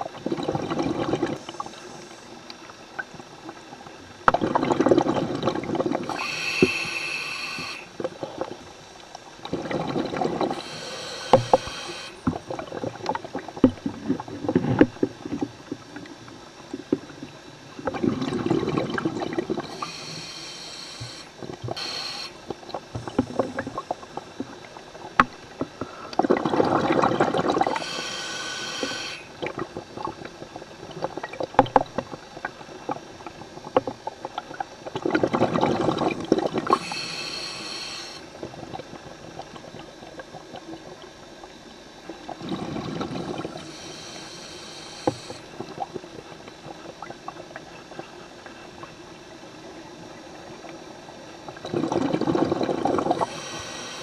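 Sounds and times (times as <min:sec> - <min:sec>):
exhaled bubbles underwater: 0:00.0 - 0:54.0
regulator hissing: 0:06.1 - 0:07.9, 0:10.5 - 0:12.3, 0:19.6 - 0:22.4, 0:27.7 - 0:29.3, 0:36.7 - 0:38.3, 0:43.6 - 0:45.5, 0:53.1 - 0:54.0.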